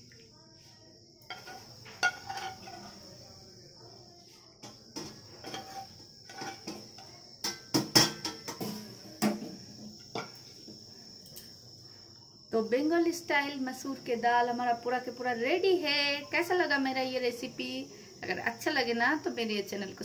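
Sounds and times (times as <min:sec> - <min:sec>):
crickets chirring: 0:00.0 - 0:20.0
ladle clinking on steel bowl: 0:01.3 - 0:03.0.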